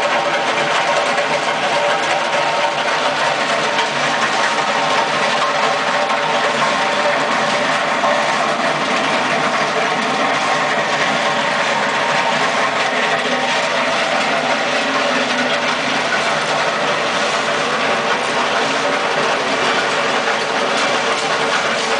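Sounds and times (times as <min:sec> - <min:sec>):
skid steer loader running: 0:00.0 - 0:21.9.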